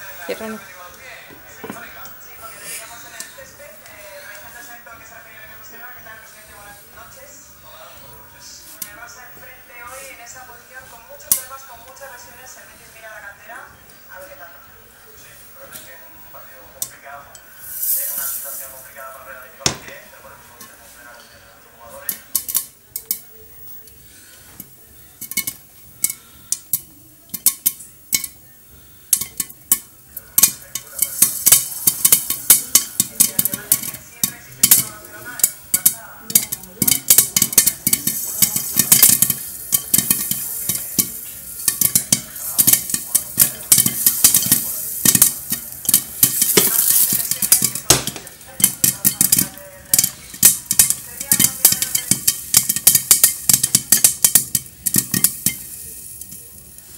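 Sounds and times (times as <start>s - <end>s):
popcorn popping: 10.8s - 12.1s, 15.6s - 20.8s, 21.9s - 56.9s
oil sizzling: 16.2s - 21.0s, 21.8s - 56.9s.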